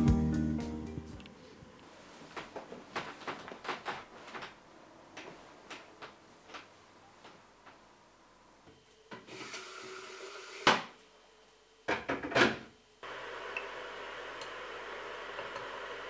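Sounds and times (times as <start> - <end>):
kettle heating water hiss: 9.2 - 10.8, 13.0 - 16.0.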